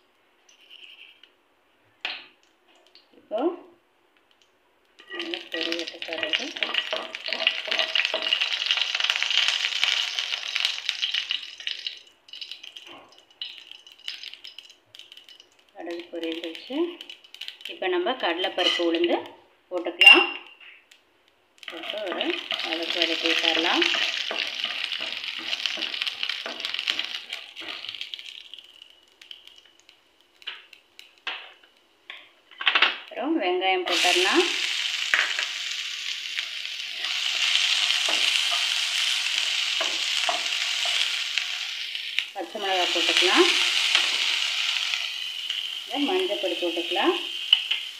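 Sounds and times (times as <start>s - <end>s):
light crackles: 4.1s - 19.4s, 20.5s - 33.2s, 34.0s - 46.5s
seeds popping in hot oil: 4.2s - 47.9s
spatula stirring in pan: 5.0s - 9.0s, 21.6s - 28.3s, 36.9s - 47.9s.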